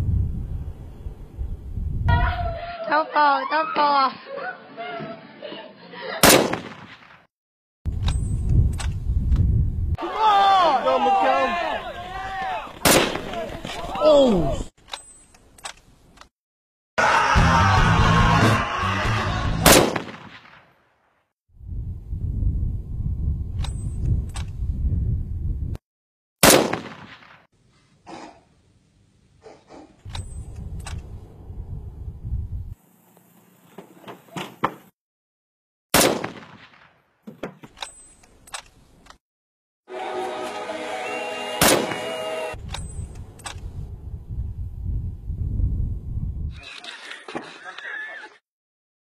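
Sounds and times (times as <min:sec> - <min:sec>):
loud rifle shot: 0:06.2 - 0:07.3, 0:12.8 - 0:13.3, 0:19.6 - 0:20.7, 0:26.4 - 0:27.5, 0:35.9 - 0:36.9, 0:41.6 - 0:42.1.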